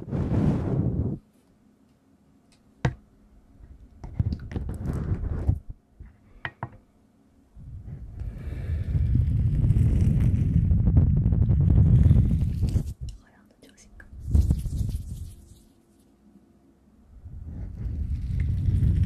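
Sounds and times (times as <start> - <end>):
steady rubbing swish: 11.6 - 13.1, 14.1 - 16.2
hands brushing microphones: 14.2 - 16.1.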